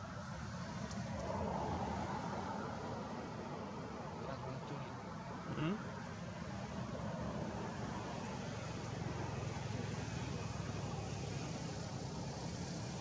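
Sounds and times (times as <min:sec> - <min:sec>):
hiss: 0:07.2 - 0:13.0.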